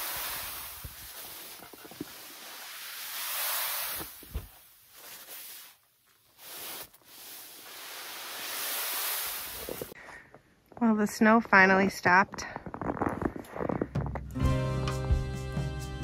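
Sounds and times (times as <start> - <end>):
snow sliding with rushing hiss: 0.0 - 10.0.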